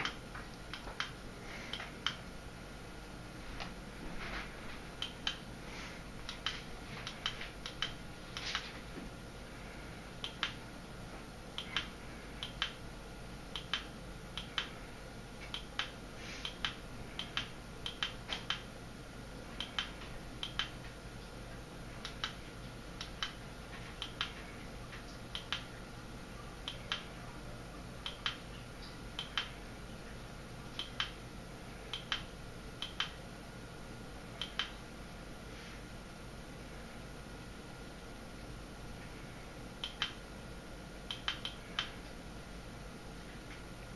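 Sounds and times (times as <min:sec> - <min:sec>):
faint steady hum: 0:00.0 - 0:43.9.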